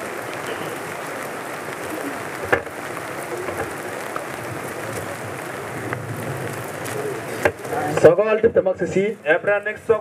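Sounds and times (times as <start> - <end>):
steady rain falling: 0.0 - 10.0.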